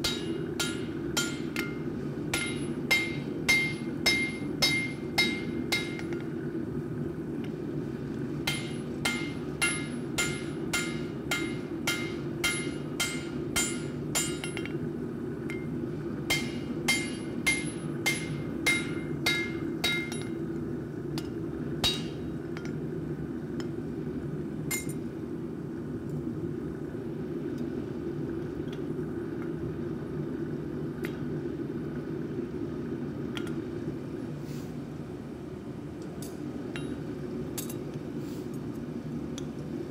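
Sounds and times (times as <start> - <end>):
hammer striking metal on anvil: 0.0 - 6.3, 8.4 - 14.8, 16.3 - 20.4, 21.2 - 22.7, 24.7 - 25.0
low machine hum: 0.0 - 39.9.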